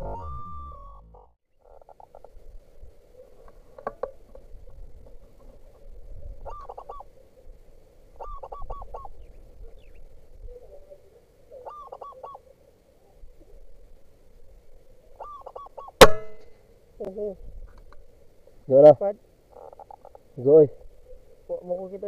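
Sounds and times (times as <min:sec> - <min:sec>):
dove cooing: 0:05.0 - 0:07.5, 0:08.1 - 0:13.2, 0:15.0 - 0:16.0, 0:19.5 - 0:20.3.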